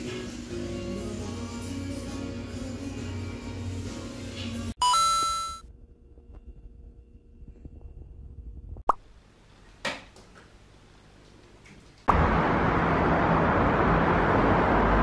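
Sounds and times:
background music: 0:00.0 - 0:04.8
bell-like ding: 0:04.8 - 0:05.6.

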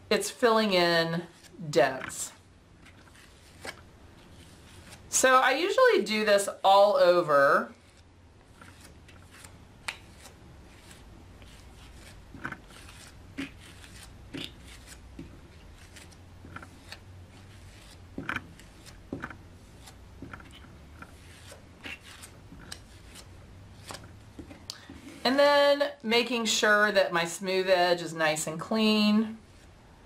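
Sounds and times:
steady low hum: 0:00.0 - 0:26.2
tool scraping clay: 0:00.6 - 0:05.5, 0:06.4 - 0:25.4.

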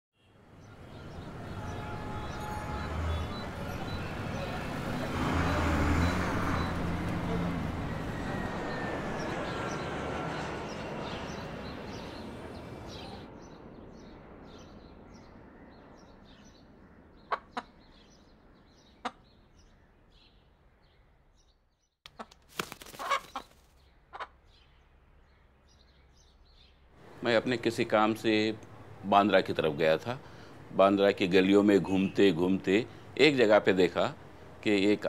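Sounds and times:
city traffic: 0:00.2 - 0:21.3, 0:22.1 - 0:35.0
small birds chirping: 0:00.6 - 0:35.0.

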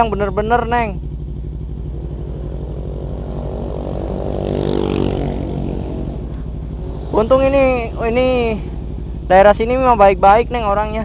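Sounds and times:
motorcycle engine idling: 0:00.0 - 0:11.0
motorbike passing by: 0:01.3 - 0:09.4.

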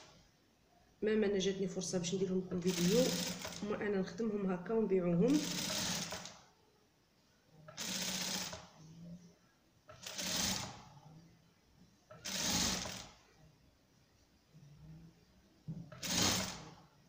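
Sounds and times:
electric sewing machine stitching: 0:02.7 - 0:03.7, 0:05.3 - 0:06.4, 0:07.7 - 0:08.7, 0:09.9 - 0:10.8, 0:12.2 - 0:13.2, 0:16.0 - 0:16.7.

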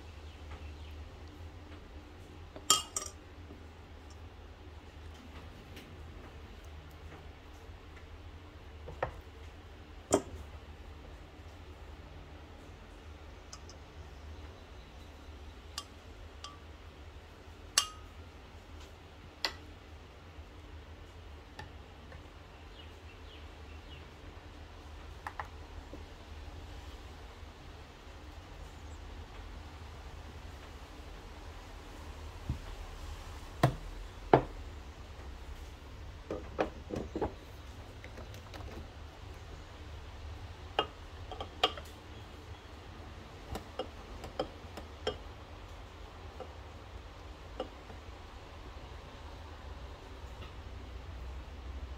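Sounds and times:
low steady hum: 0:00.0 - 0:51.9
spoon clinking against glass mug: 0:02.7 - 0:03.2.

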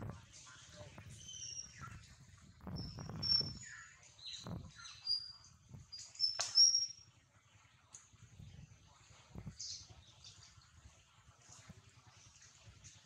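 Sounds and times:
birds chirping: 0:00.5 - 0:07.0.

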